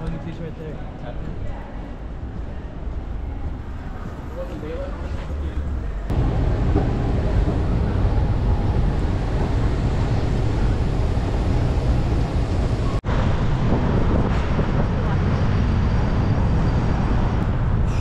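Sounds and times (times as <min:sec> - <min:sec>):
city street noise: 0:00.0 - 0:18.0
wind rumbling on microphone: 0:06.1 - 0:18.0.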